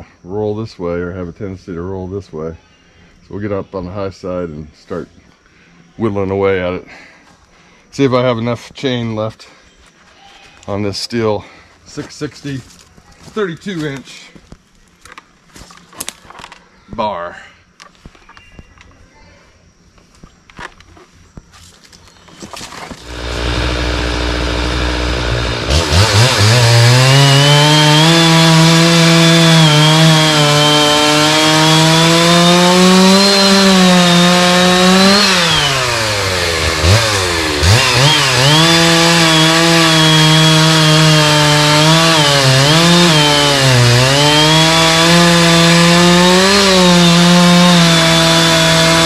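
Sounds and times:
chainsaw cutting through trunk: 0:22.6 - 0:49.0.

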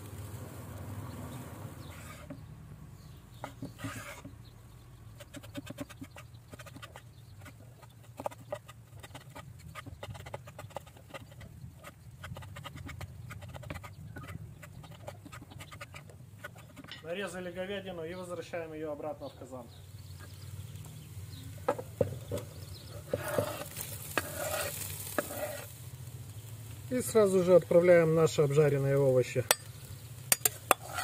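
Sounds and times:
knife chopping on wooden board: 0:03.4 - 0:04.3, 0:23.1 - 0:24.6.

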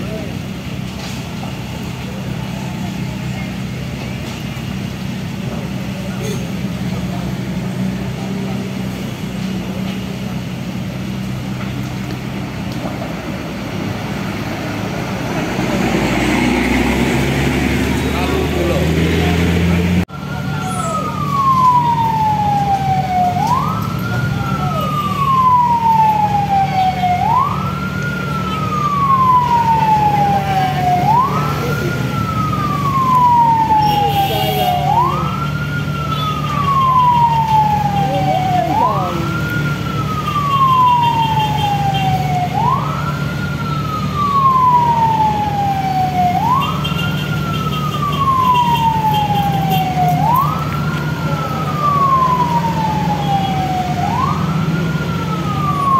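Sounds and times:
fire truck siren wailing: 0:00.0 - 0:55.9.

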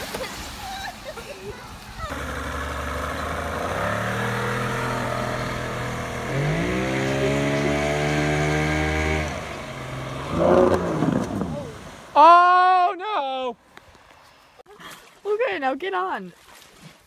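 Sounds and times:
outboard motor running and revving: 0:02.0 - 0:12.0.

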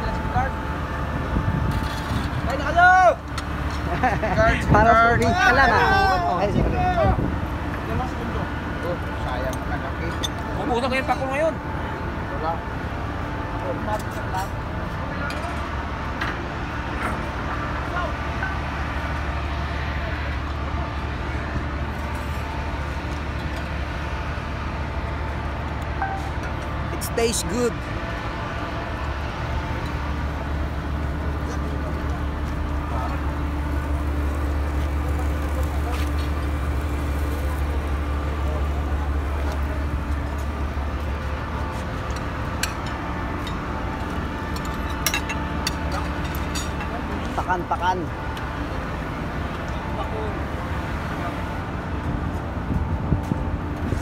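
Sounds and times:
ship machinery drone: 0:00.0 - 0:54.0.

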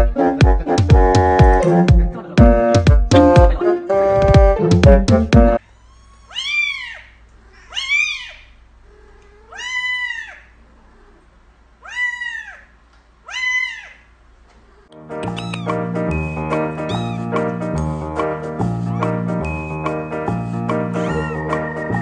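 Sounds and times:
background music: 0:00.0 - 0:05.6, 0:15.0 - 0:22.0
cat meowing: 0:05.6 - 0:11.2, 0:11.8 - 0:14.1, 0:14.8 - 0:15.8, 0:16.8 - 0:17.4, 0:21.0 - 0:21.6.

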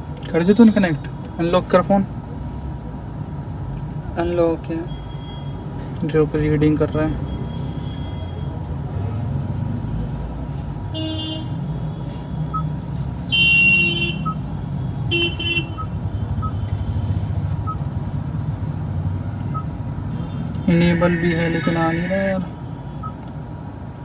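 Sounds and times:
low traffic rumble: 0:00.0 - 0:24.0
vehicle horns honking: 0:10.9 - 0:12.4, 0:13.3 - 0:14.4, 0:15.0 - 0:16.9, 0:20.2 - 0:22.2.

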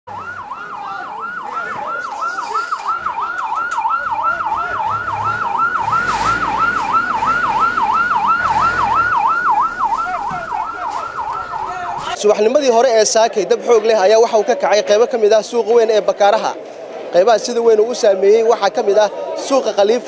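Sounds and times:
fire engine siren yelping: 0:00.1 - 0:12.2.

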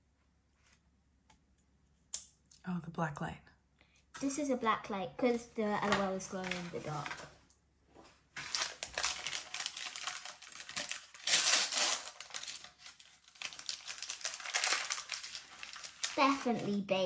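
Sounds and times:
wrapper crinkling and tearing: 0:08.4 - 0:16.8.

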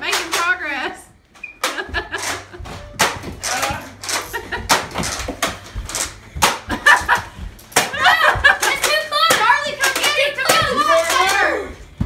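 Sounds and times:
children's voices: 0:08.6 - 0:11.8.

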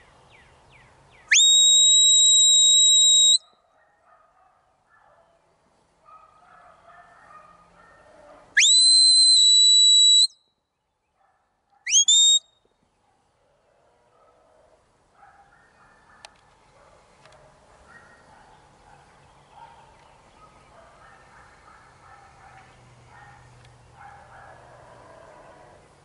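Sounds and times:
person whistling commands: 0:01.3 - 0:03.4, 0:08.6 - 0:10.4, 0:11.9 - 0:12.4.

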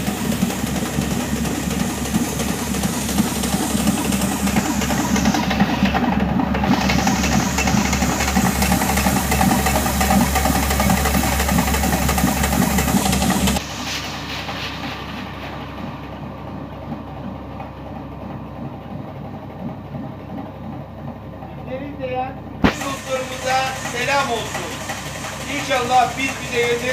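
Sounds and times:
grain mill grinding: 0:00.0 - 0:14.1, 0:22.7 - 0:26.9.

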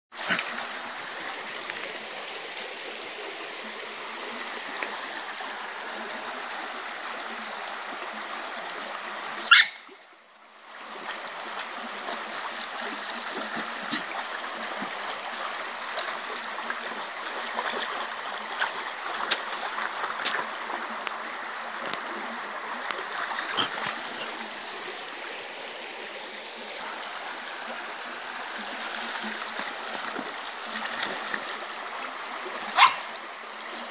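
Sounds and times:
stream rushing over stones: 0:00.1 - 0:33.9
dogs splashing through water: 0:23.0 - 0:25.0.

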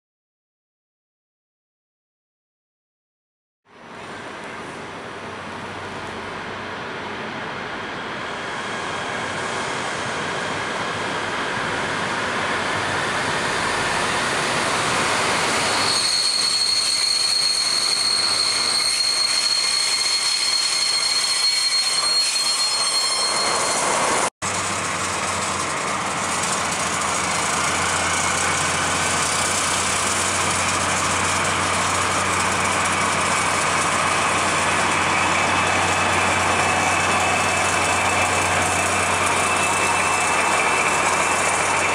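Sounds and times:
diesel locomotive engines idling: 0:03.8 - 0:41.9
train approaching: 0:03.8 - 0:41.9
high brake squeal: 0:11.9 - 0:41.9.

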